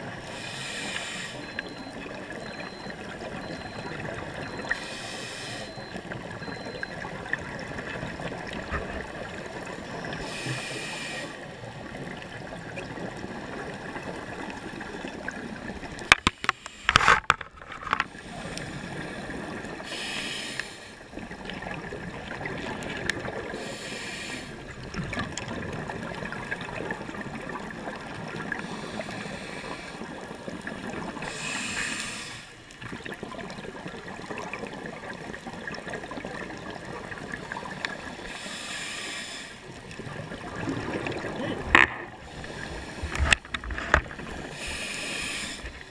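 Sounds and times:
scuba exhaust bubbles rushing: 0:00.0 - 0:16.0, 0:39.7 - 0:45.9
underwater crackling hiss: 0:00.2 - 0:01.5, 0:04.6 - 0:05.7, 0:10.2 - 0:11.4, 0:16.3 - 0:17.2, 0:18.0 - 0:21.0, 0:23.5 - 0:24.6, 0:28.6 - 0:30.3, 0:31.2 - 0:32.6, 0:37.6 - 0:39.8, 0:41.1 - 0:45.9.

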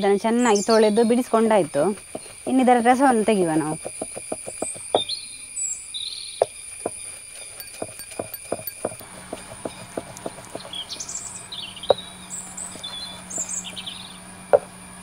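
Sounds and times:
birds chirping: 0:00.0 - 0:15.0
stone roller knocking on wooden board: 0:03.7 - 0:05.1, 0:06.8 - 0:11.1.

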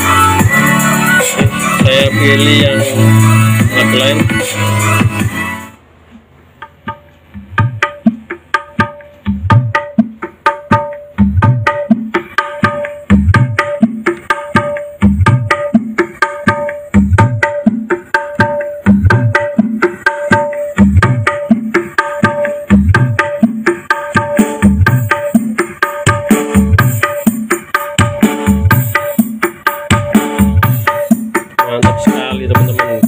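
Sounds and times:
percussion-heavy music on loudspeaker: 0:00.0 - 0:33.0
deep drum thumps: 0:06.6 - 0:33.0.

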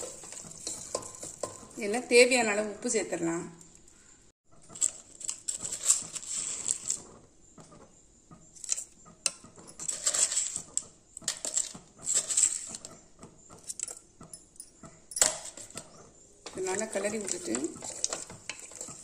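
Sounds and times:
wooden spatula scraping metal pot: 0:00.0 - 0:02.6, 0:04.8 - 0:07.3, 0:08.6 - 0:13.9, 0:15.4 - 0:19.0.

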